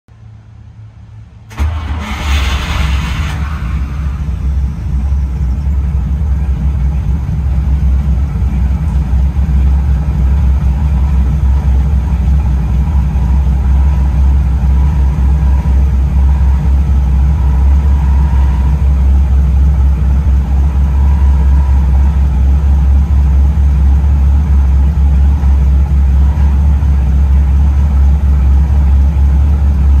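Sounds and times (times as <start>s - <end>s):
deep engine idle: 0.2s - 30.0s
tank engines starting: 1.5s - 30.0s.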